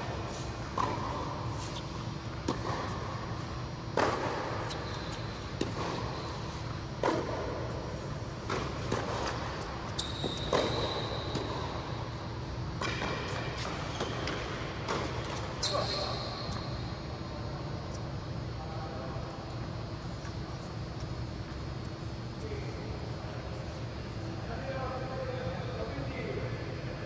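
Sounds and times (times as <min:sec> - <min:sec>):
low hum of hall: 0:00.0 - 0:27.0
tennis ball struck and bouncing: 0:00.7 - 0:01.3, 0:02.4 - 0:03.0, 0:03.9 - 0:04.6, 0:05.5 - 0:06.1, 0:07.0 - 0:07.5, 0:08.4 - 0:09.5
high squeak: 0:15.6 - 0:16.7.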